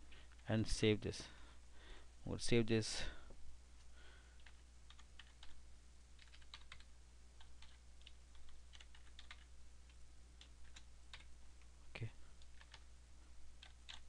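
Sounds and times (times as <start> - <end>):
typing on computer keyboard: 4.4 - 5.6, 6.2 - 11.3, 12.4 - 12.8, 13.6 - 14.0.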